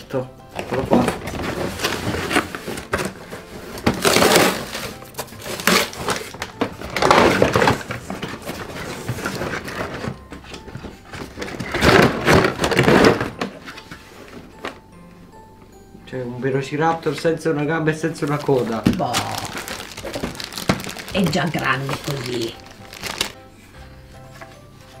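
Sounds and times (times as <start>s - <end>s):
plastic wrap rustling: 0.6s - 14.5s, 17.0s - 23.5s
cardboard tearing: 0.8s - 10.2s, 18.3s - 23.4s.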